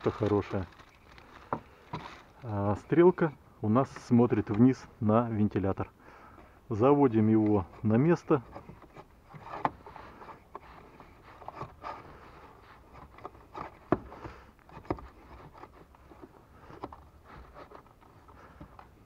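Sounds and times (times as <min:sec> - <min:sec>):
light scraping: 0:07.0 - 0:19.0.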